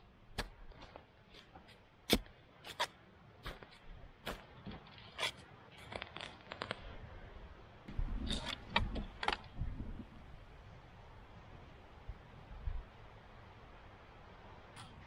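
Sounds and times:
spade scraping into soil: 1.3s - 6.7s.

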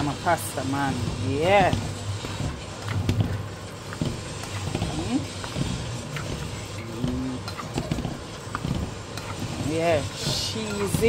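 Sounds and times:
utensil stirring pasta in pot: 0.0s - 11.0s.

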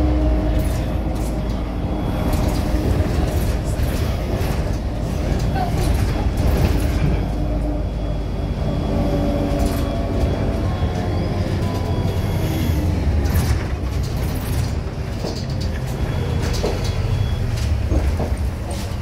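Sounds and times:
bus engine and road rumble: 0.0s - 19.0s.

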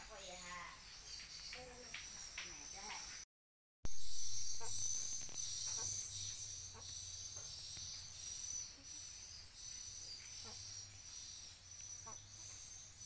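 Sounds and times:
insects buzzing: 0.0s - 3.2s, 3.9s - 13.0s
faint short insect chirps: 3.9s - 13.0s.

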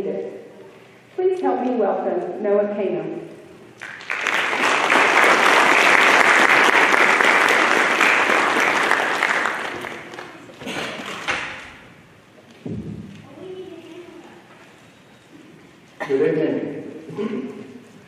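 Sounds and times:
audience applauding: 3.8s - 11.6s.

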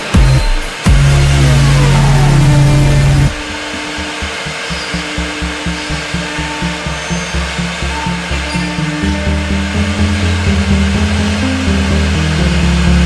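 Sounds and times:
electronic background music: 0.0s - 13.0s.

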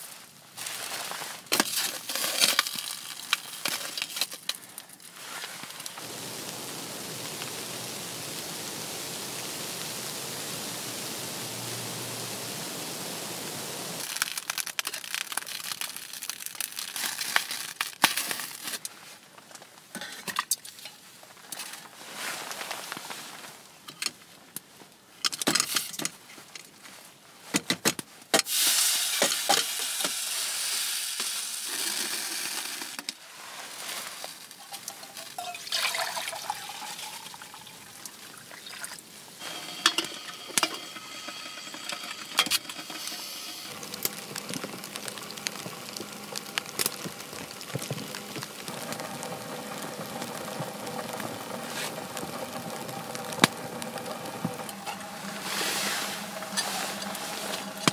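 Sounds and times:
loud hiss: 5.8s - 14.5s, 28.4s - 33.0s, 39.2s - 50.2s, 51.4s - 57.9s
metal cookware clinking: 34.6s - 37.2s, 39.4s - 43.6s
water poured into metal mug: 34.6s - 49.8s.

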